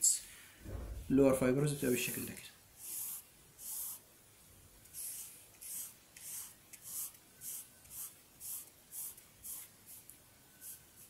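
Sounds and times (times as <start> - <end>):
marker pen scratching on paper: 2.8 - 4.1, 4.8 - 11.0.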